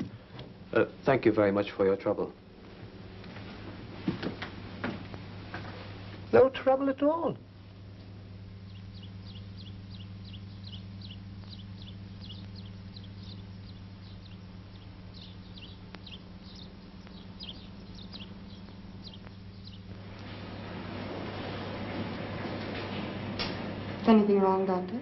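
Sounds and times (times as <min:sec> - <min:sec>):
low electrical hum: 0:00.0 - 0:25.0
small bird chirping: 0:08.4 - 0:20.2.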